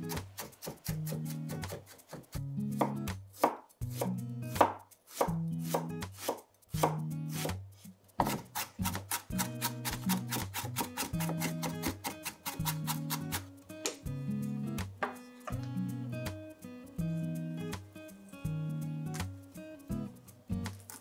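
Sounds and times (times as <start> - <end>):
soft background music: 0.0 - 21.0
knife chopping on cutting board: 0.1 - 7.6, 8.2 - 14.0.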